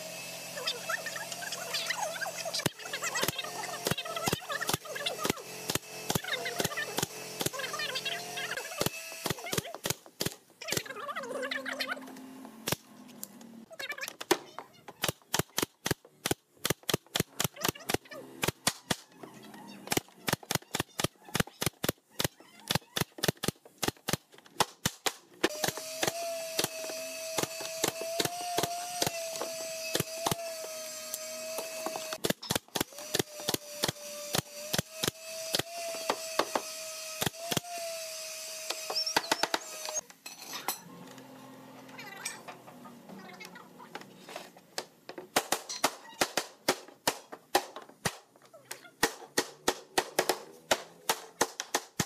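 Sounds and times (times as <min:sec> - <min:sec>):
nail gun firing into wood: 0:02.6 - 0:07.6, 0:15.0 - 0:19.0, 0:19.9 - 0:37.8, 0:45.3 - 0:48.3, 0:49.0 - 0:52.0.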